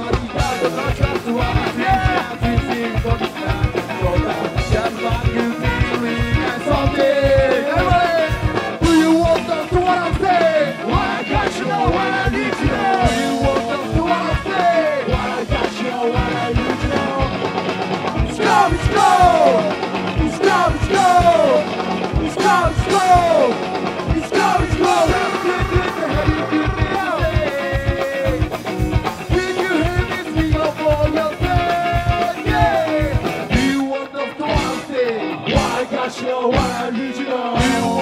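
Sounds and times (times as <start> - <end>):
person singing: 0.0 - 17.5, 18.1 - 28.6, 29.2 - 38.0
drum beat: 0.0 - 33.9
electric guitars: 0.0 - 38.0
trumpet: 8.2 - 15.0, 18.3 - 21.6, 24.2 - 28.3.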